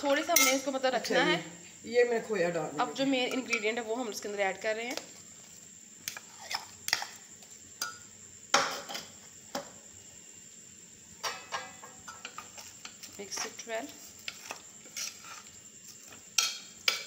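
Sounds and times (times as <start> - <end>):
metal spoon scraping a pot: 6.1 - 7.2, 14.2 - 17.0.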